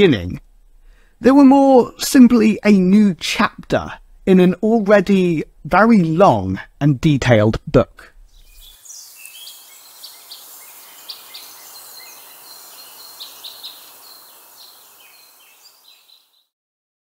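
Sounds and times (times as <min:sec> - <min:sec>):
steady hiss: 0:07.8 - 0:16.3
small birds chirping: 0:08.1 - 0:16.5.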